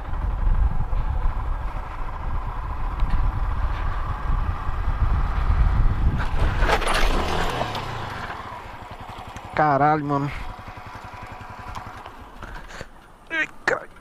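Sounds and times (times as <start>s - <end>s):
wind rumbling on microphone: 0.0s - 8.3s
motorcycle running: 0.0s - 13.2s.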